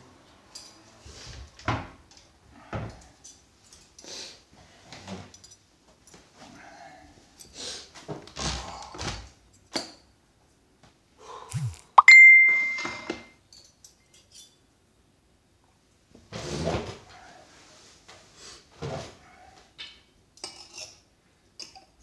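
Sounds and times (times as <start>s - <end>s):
ringing clink: 12.0s - 13.3s.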